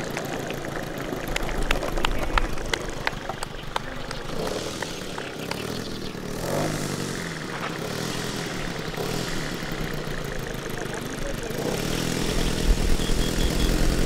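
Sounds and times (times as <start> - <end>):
model airplane engine and propeller: 0.0 - 14.0.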